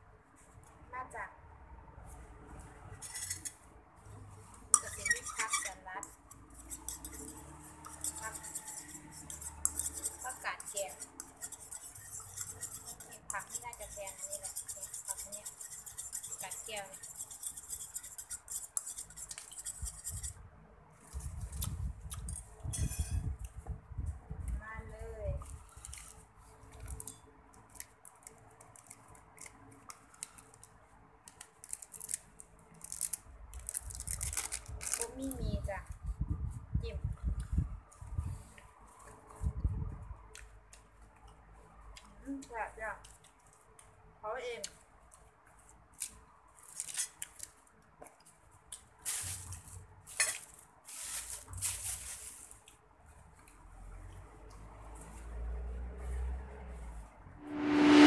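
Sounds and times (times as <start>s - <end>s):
lettuce crinkling and tearing: 31.4s - 35.2s, 46.0s - 47.6s
lettuce leaves rustling and tearing: 32.8s - 35.1s.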